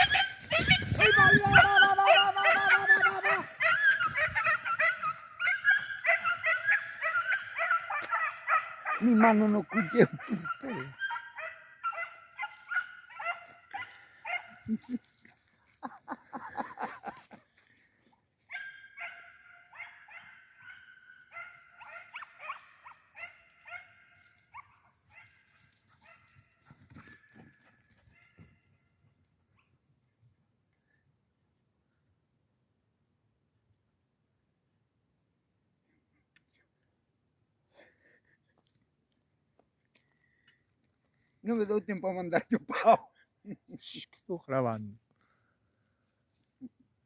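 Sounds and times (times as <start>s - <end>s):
hunting dogs yelping: 0.0s - 15.0s, 18.5s - 28.8s.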